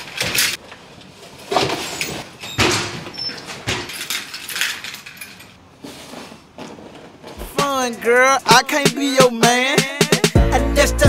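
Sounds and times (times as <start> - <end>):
boxes scraping and knocking metal: 0.0 - 8.0.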